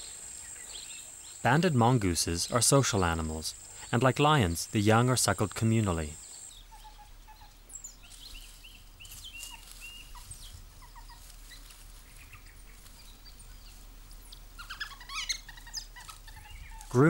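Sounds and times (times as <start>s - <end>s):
mongoose chirps and squeaks: 14.3s - 17.0s.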